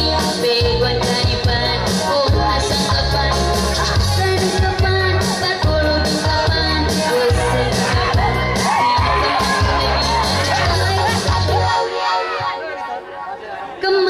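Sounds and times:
woman singing into microphone: 0.0 - 13.0, 13.8 - 14.0
electronic keyboard music with beat: 0.0 - 14.0.

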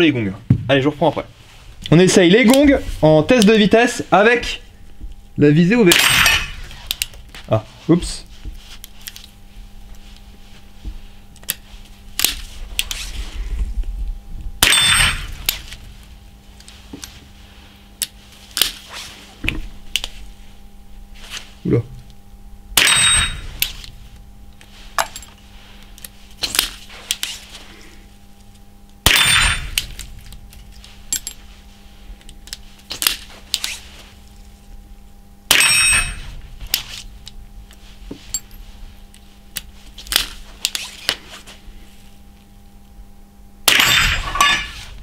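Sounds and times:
rifle shots: 5.9 - 6.5, 29.0 - 29.8, 43.7 - 44.6.

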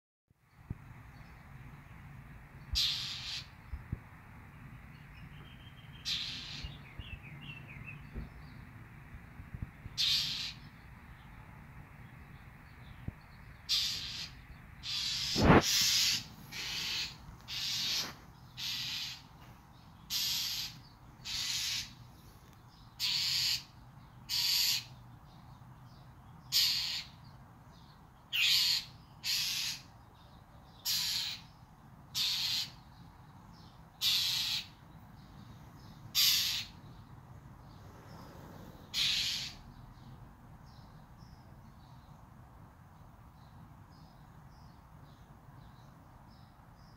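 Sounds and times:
songbird harsh calls: 2.6 - 3.9, 4.9 - 8.6, 9.9 - 11.0, 12.8 - 19.4, 20.0 - 42.1.

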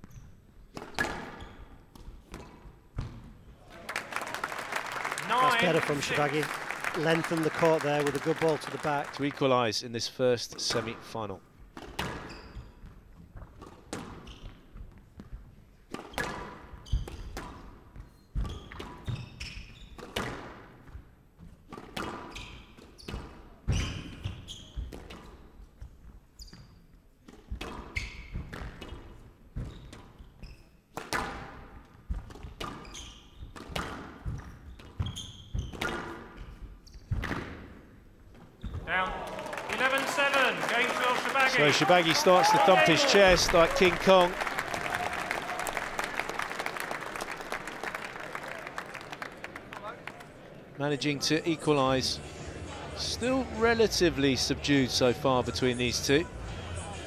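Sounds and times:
squash ball hitting rackets and walls: 0.0 - 3.4, 11.7 - 21.0, 21.6 - 25.6, 27.2 - 38.8.

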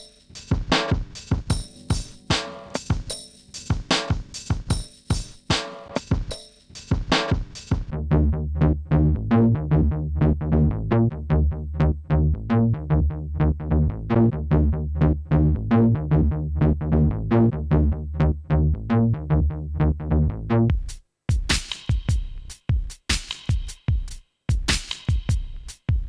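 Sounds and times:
synth bass line: 7.9 - 20.7.

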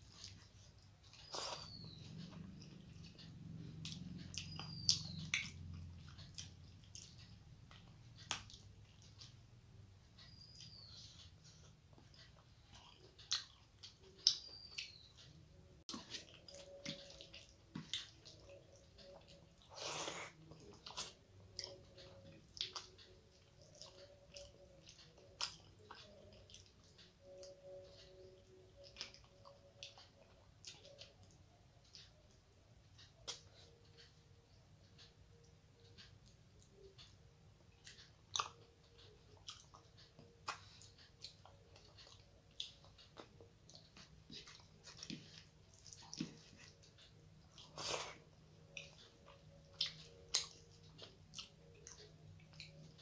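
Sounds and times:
person chewing wetly: 0.0 - 9.4, 10.3 - 15.2, 15.8 - 32.1, 37.7 - 53.0
fingers squishing rice: 10.2 - 34.1.

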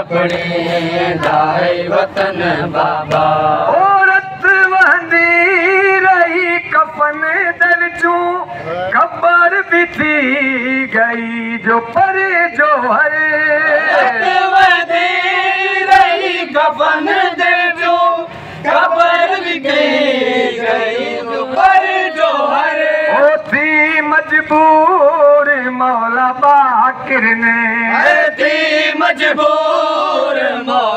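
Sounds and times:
group of men chanting: 0.0 - 4.0, 13.2 - 23.6, 27.8 - 30.9
man singing a lament into microphone: 0.0 - 29.4.

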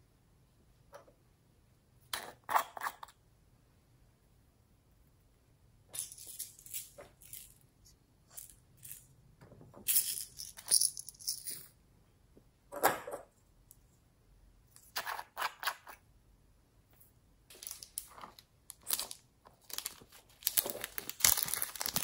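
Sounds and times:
beads rattling in plastic container: 17.5 - 22.0.

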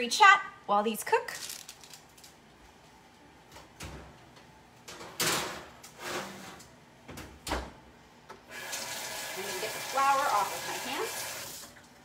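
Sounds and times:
oven rack scraping: 5.0 - 6.7.

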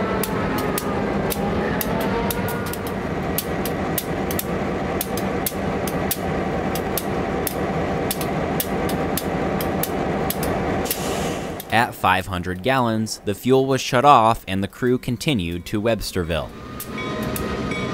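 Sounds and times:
diesel locomotive idling: 0.0 - 17.9
sharp clicks: 0.2 - 11.9
fuel hose nozzle filling: 10.8 - 11.7.

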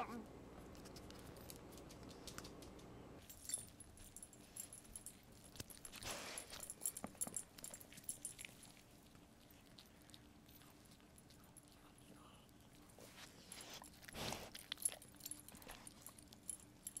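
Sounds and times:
dog sniffing: 5.8 - 7.2, 12.9 - 14.8
dog licking: 7.8 - 16.4.

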